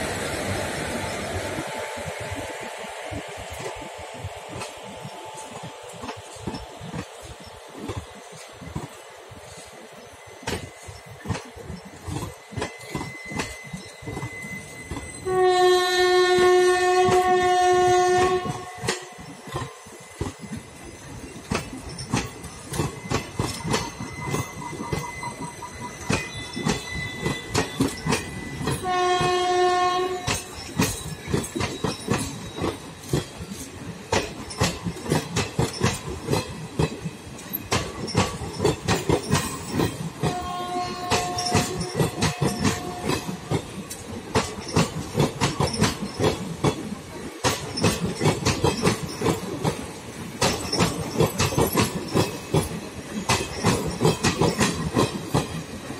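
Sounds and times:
train wheels clicking over rail joints: 0.0 - 55.9
train horn: 15.2 - 19.2, 28.7 - 30.5, 40.2 - 43.5.

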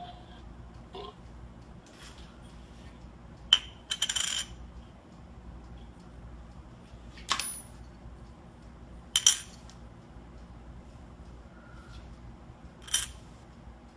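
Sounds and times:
coin clinking on a small dish: 3.9 - 4.5.

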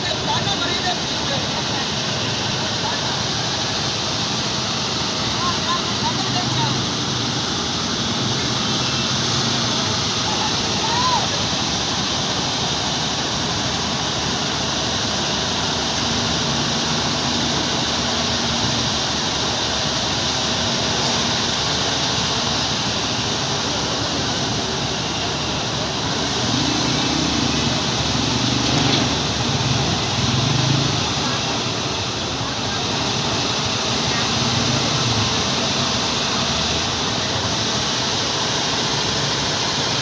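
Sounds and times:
heavy machinery engine noise: 0.0 - 40.0.

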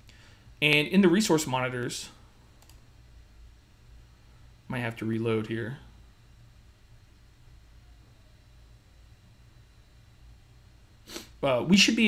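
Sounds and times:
faint low hum: 0.0 - 12.0
light hiss: 11.0 - 11.6.

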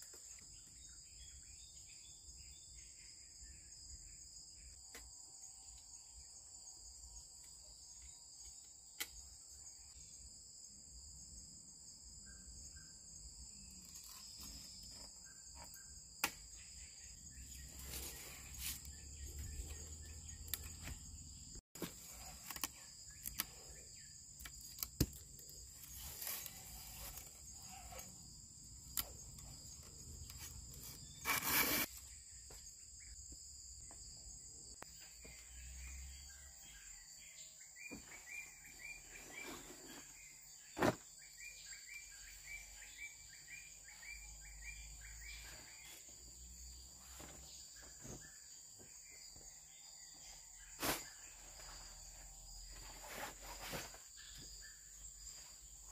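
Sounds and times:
chorus of forest insects: 0.0 - 55.9
rustling: 52.7 - 54.2.

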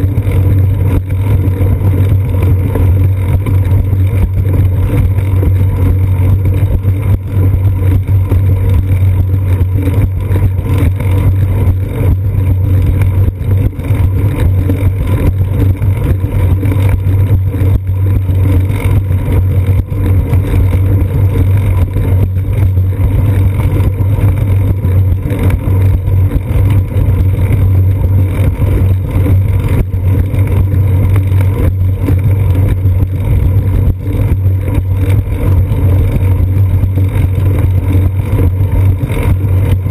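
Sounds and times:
wind and road vibration rumble: 0.0 - 39.9.

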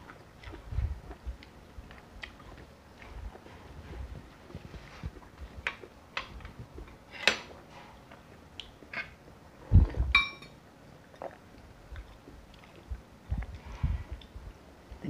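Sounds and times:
glass bowl clinking: 10.1 - 10.6.

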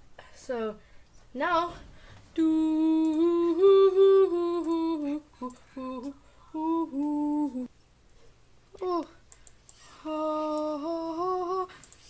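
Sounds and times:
person humming a slow tune: 2.4 - 7.7, 8.8 - 9.2, 9.9 - 11.9.

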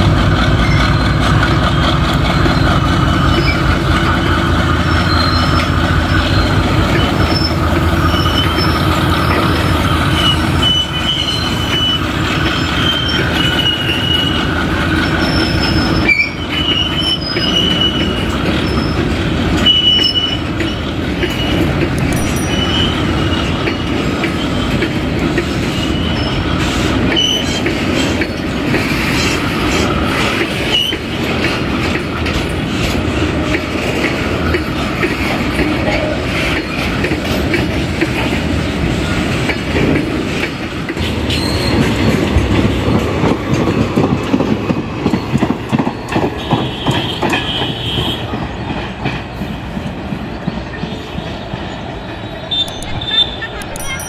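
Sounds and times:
diesel locomotive hum: 0.0 - 54.0
train wheels clattering on rails: 0.0 - 54.0
high-pitched wheel squeals: 0.6 - 3.9, 4.7 - 24.7, 25.7 - 27.6, 41.3 - 42.2.

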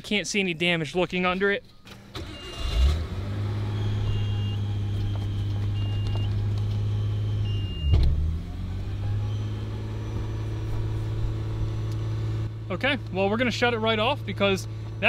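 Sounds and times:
car engine idling: 2.0 - 15.0
faint warning chime beeping: 3.6 - 8.0, 8.9 - 11.9.

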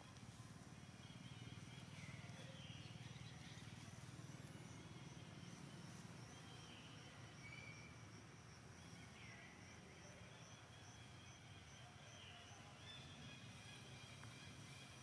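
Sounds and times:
distant bird whistles: 6.3 - 8.0.

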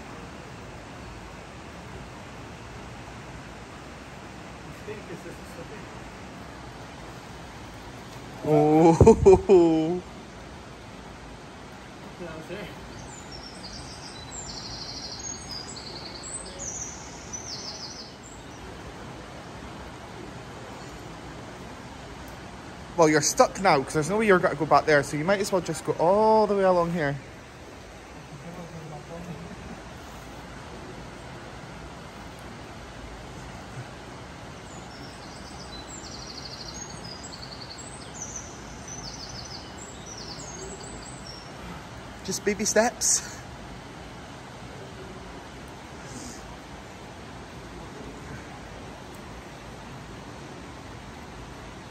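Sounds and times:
songbird trilling: 12.9 - 18.6, 34.7 - 41.6.

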